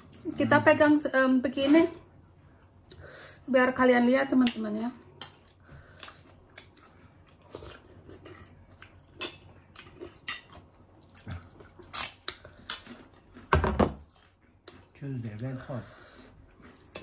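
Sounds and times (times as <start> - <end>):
chewing and biting: 5.2 - 15.6, 16.3 - 17.0.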